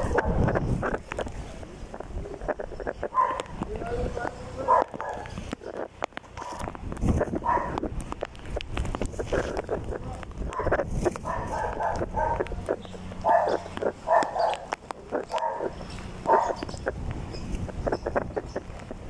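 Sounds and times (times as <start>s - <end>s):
dog barking: 3.1s - 3.5s, 4.6s - 5.3s, 7.4s - 7.8s, 10.5s - 12.5s, 13.2s - 14.7s, 15.3s - 16.6s.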